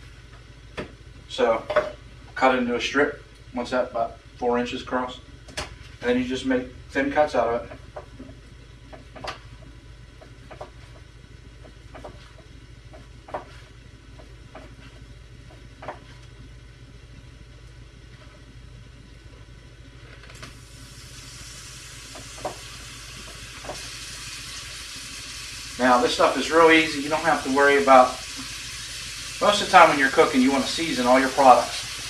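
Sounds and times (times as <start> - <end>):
low steady hum: 0.0 - 32.0
steady hiss: 20.3 - 32.0.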